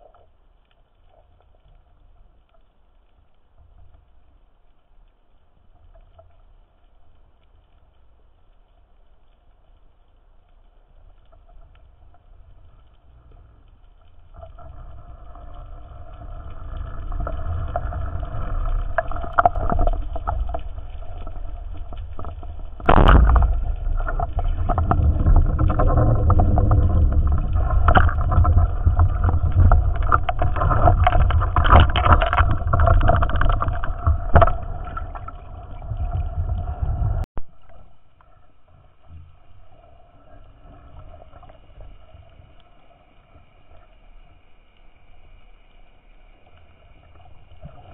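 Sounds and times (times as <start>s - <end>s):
motorboat engine droning underwater: 10.9s - 47.9s.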